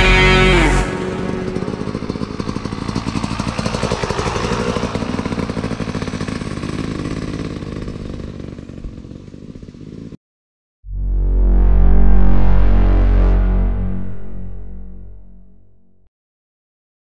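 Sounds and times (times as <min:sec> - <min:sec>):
dirt bike engine passing by: 0:00.0 - 0:10.1.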